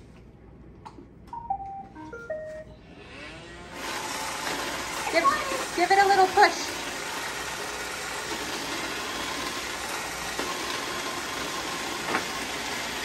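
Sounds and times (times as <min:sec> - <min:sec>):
robot vacuum motors whirring: 0:02.9 - 0:13.0.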